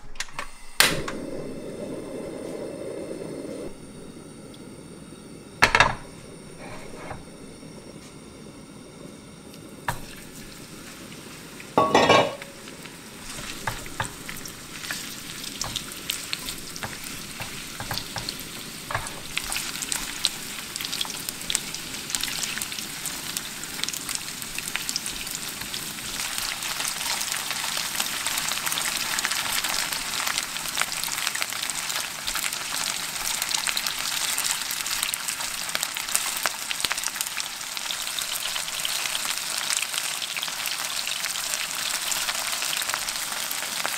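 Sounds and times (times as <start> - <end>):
meat sizzling in hot oil: 8.7 - 43.9.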